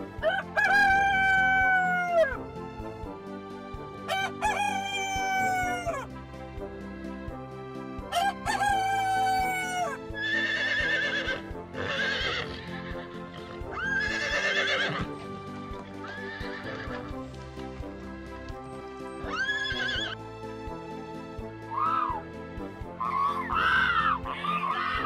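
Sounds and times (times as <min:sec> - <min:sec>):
background music: 0:00.0 - 0:25.0
rooster crowing: 0:00.2 - 0:02.4, 0:04.1 - 0:06.0, 0:08.1 - 0:10.0
horses whinnying: 0:09.0 - 0:17.2, 0:19.2 - 0:20.2, 0:21.7 - 0:22.2, 0:23.0 - 0:25.0.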